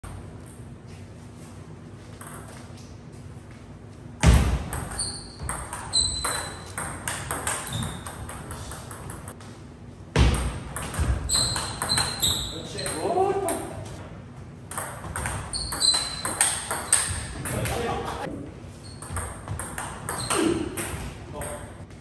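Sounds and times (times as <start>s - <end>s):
ping pong ball clicking: 4.7s - 9.3s, 14.7s - 17.8s
shoes squeaking on wooden floor: 4.8s - 6.8s, 7.6s - 9.4s, 11.0s - 12.8s, 15.1s - 21.1s.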